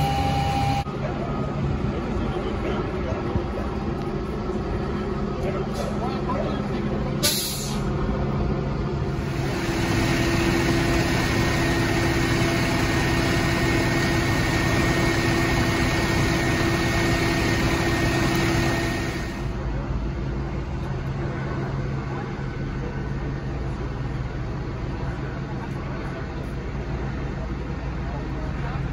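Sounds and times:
outdoor background noise: 0.0s - 28.9s
vehicle engine idling: 9.0s - 19.9s.

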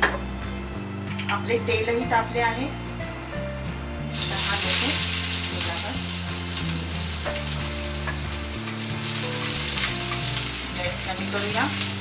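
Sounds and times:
garlic sizzling in hot oil: 4.1s - 12.0s.

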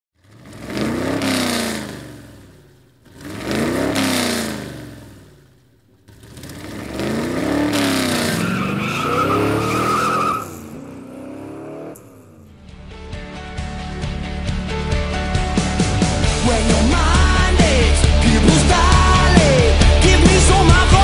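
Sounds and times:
car engine sound effect: 0.2s - 12.6s.

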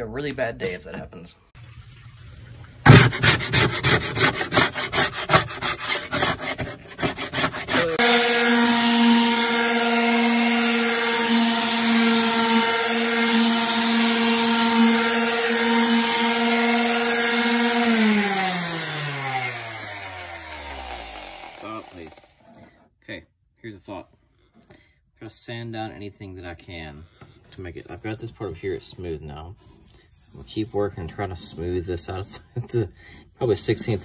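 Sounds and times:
rough scraping strokes: 2.9s - 8.6s, 27.8s - 32.2s
detail sander running: 3.2s - 22.5s.

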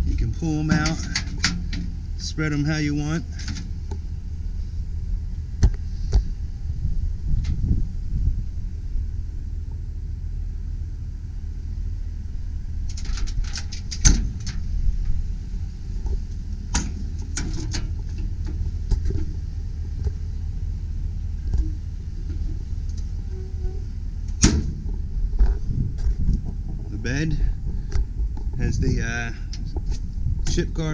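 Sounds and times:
steady low rumble: 0.0s - 30.9s
metal compartment clicks and clunks: 0.5s - 2.0s, 3.4s - 3.8s, 12.9s - 14.7s, 16.7s - 19.4s, 21.5s - 25.0s.

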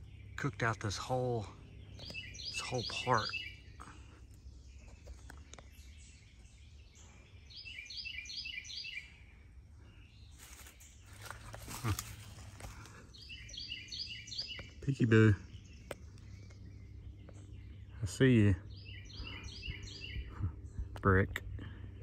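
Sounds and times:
bird singing high notes: 2.0s - 3.7s.

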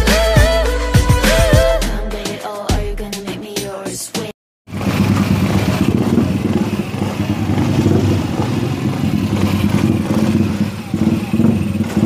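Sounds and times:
scooter engine running: 4.7s - 12.0s.

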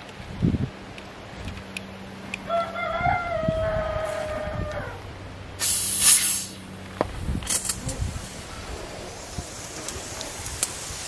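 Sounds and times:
rooster crowing: 2.4s - 5.1s
loud hiss: 5.6s - 6.7s, 7.4s - 11.0s.

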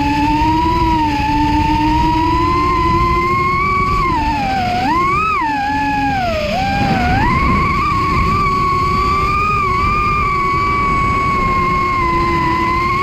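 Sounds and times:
quadcopter motors whining: 0.0s - 13.0s
low rumble: 0.8s - 13.0s.

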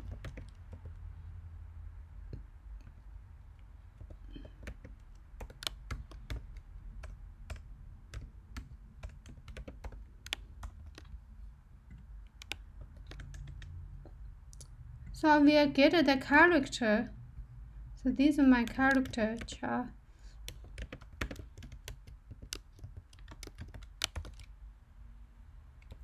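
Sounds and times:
keyboard typing: 0.0s - 1.0s, 3.9s - 11.2s, 11.9s - 13.8s, 18.5s - 19.6s, 20.4s - 24.5s, 25.8s - 26.0s
low steady hum: 0.0s - 26.0s.

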